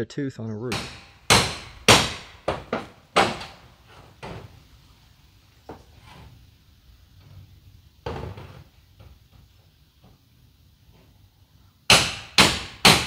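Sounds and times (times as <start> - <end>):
hammer on metal roof: 0.7 - 4.5, 11.9 - 13.0.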